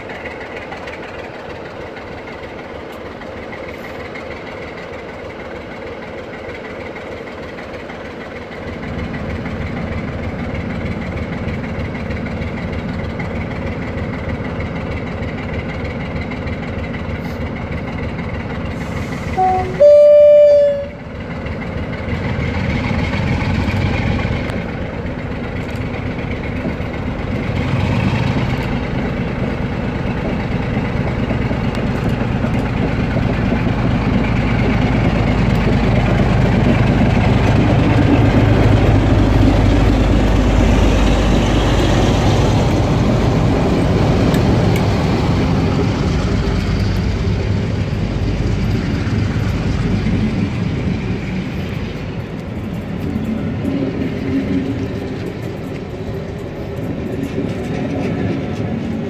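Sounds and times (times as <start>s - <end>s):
diesel locomotive engine running: 0.0s - 59.0s
locomotive horn blast: 19.3s - 21.1s.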